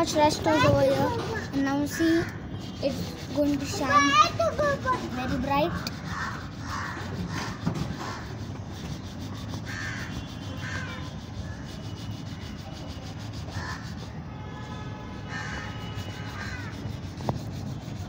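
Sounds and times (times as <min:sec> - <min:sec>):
steel wool scrubbing metal rim: 0:00.5 - 0:14.2, 0:15.6 - 0:18.0
harsh cawing bird calls: 0:01.1 - 0:02.8, 0:05.6 - 0:08.6, 0:09.3 - 0:12.5, 0:13.4 - 0:14.1, 0:15.2 - 0:17.0.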